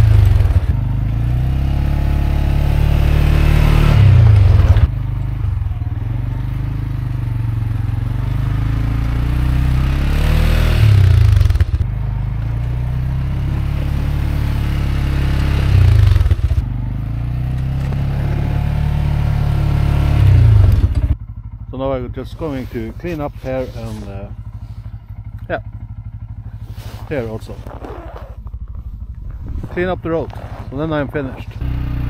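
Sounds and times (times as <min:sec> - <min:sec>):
plow scraping through snow: 0:00.0 - 0:00.8, 0:03.2 - 0:04.9, 0:22.4 - 0:24.8, 0:26.5 - 0:28.5, 0:29.3 - 0:31.8
atv engine revving: 0:00.0 - 0:32.0.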